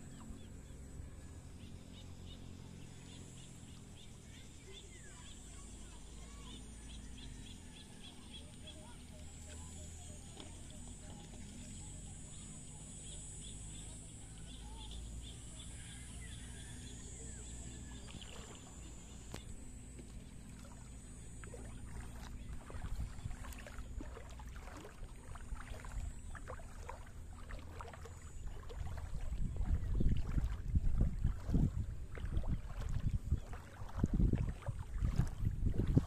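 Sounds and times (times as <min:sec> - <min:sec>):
wind buffeting microphone: 0:28.5 - 0:36.0.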